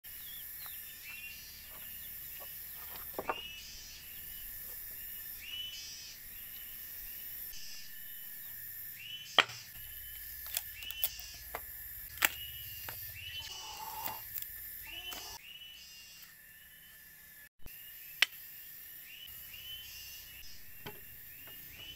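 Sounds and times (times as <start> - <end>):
birds chirping: 0.1 - 17.0, 19.1 - 21.9
high pulsing insect drone: 0.1 - 21.9
wood pieces knocking: 2.8 - 3.4.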